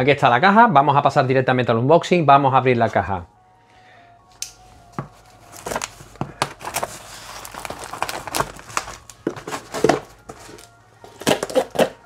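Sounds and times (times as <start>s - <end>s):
knife slitting packing tape: 11.1s - 12.0s.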